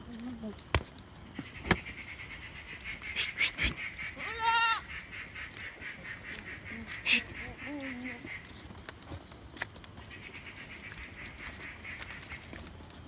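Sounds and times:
goat bleating: 4.1s - 4.9s.

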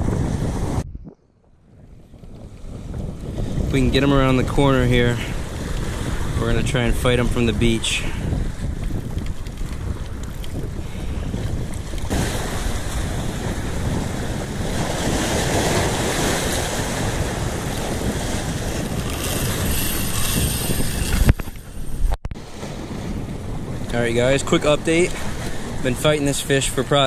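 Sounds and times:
wind buffeting microphone: 0.0s - 27.0s
surf breaking against rocks: 12.0s - 21.1s.

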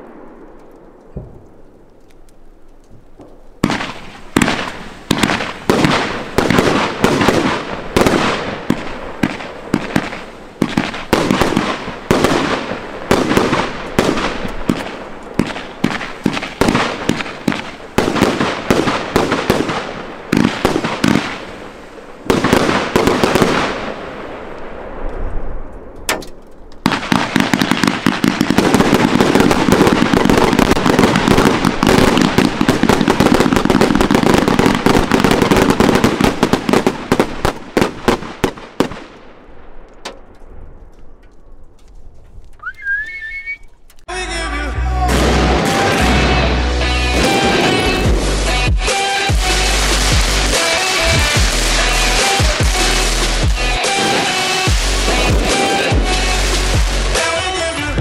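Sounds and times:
firework bangs: 0.0s - 2.3s, 3.0s - 41.2s, 44.9s - 58.0s
firework shells bursting: 0.0s - 24.0s
crackling firework barrage: 0.0s - 43.5s, 44.1s - 58.0s.

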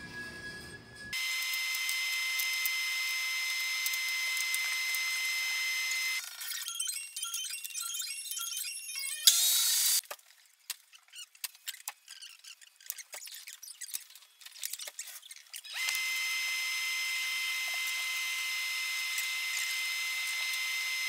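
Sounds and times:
motor whine: 1.1s - 6.2s, 15.7s - 21.0s.

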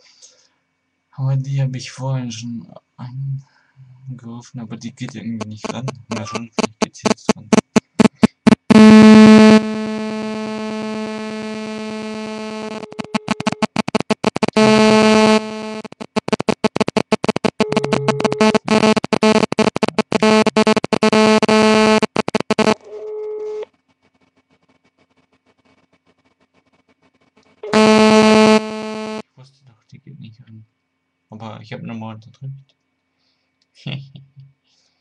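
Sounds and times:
distorted electronic phone tones: 5.4s - 23.6s, 27.6s - 29.2s.

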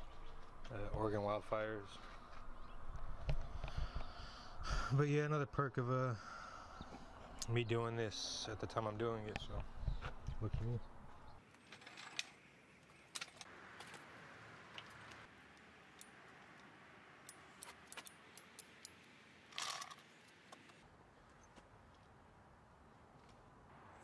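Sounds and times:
clinks of small metal parts: 11.6s - 13.5s, 19.5s - 20.1s.

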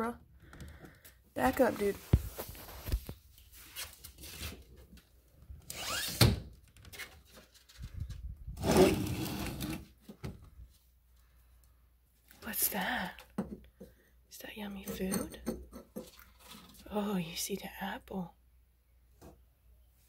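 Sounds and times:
scraping and rubbing handling noise: 1.4s - 5.0s.

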